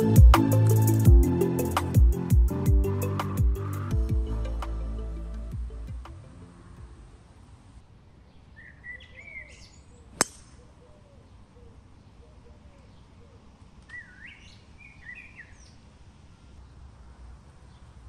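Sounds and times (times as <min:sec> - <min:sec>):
birds chirping: 0:08.1 - 0:16.9
golf club striking ball: 0:10.2 - 0:10.6.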